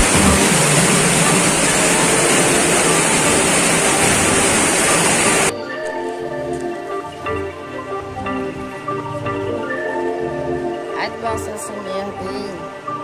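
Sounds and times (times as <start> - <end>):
water running through tunnel: 0.0 - 5.5
marimba background music: 0.0 - 13.0.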